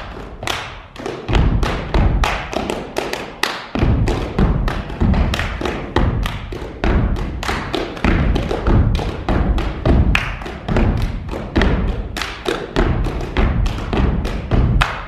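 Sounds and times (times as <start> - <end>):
rubber boots stomping on wooden stage: 3.7 - 12.1, 12.7 - 14.9.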